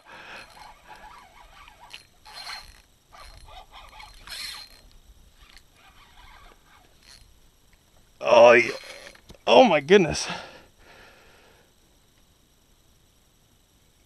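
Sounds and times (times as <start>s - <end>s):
fishing reel winding in bursts: 0.0s - 7.4s, 8.4s - 9.2s.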